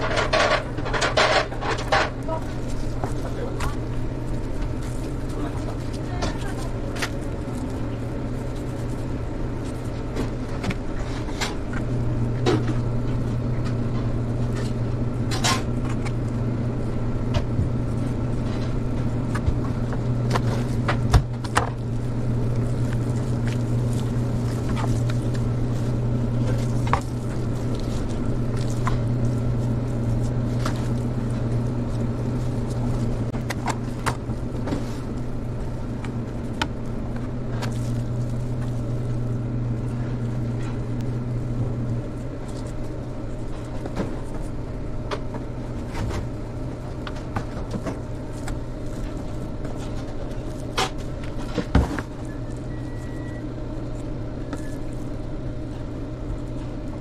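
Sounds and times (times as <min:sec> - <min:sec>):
kitchen machinery hum: 0:00.0 - 0:57.0.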